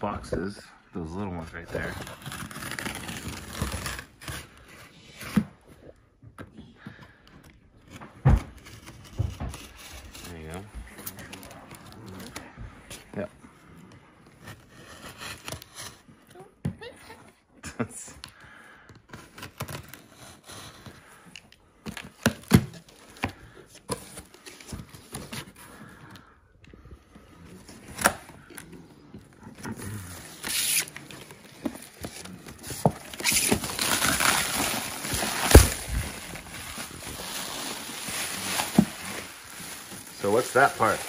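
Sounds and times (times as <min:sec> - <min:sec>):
bubble wrap crinkling: 0:01.2 - 0:05.3, 0:27.2 - 0:41.0
knife scraping packing tape: 0:01.8 - 0:04.6, 0:30.0 - 0:35.9.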